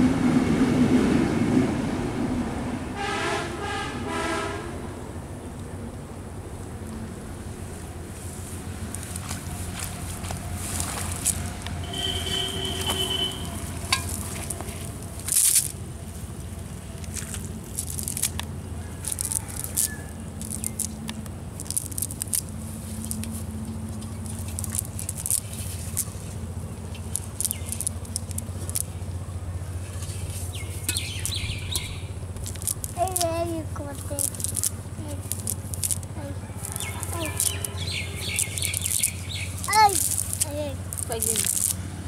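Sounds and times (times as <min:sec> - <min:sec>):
steady low hum: 0:00.0 - 0:42.0
wet net clicking and rustling: 0:08.8 - 0:29.0, 0:30.0 - 0:33.4, 0:34.0 - 0:41.8.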